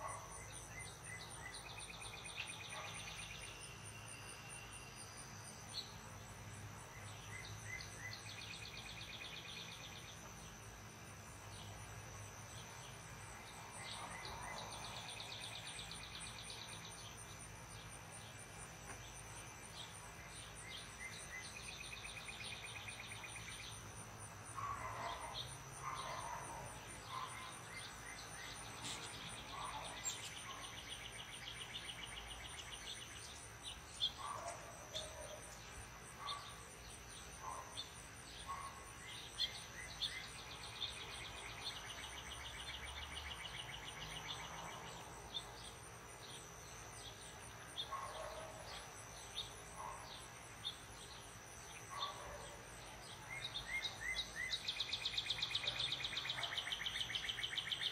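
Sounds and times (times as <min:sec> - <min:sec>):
crickets chirping: 0:00.0 - 0:57.9.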